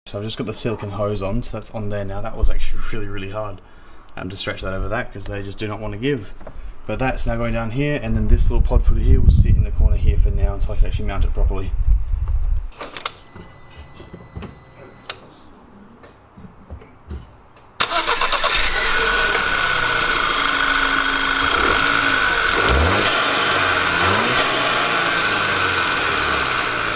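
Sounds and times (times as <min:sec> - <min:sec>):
car engine starting and idling: 0:17.8 - 0:26.9.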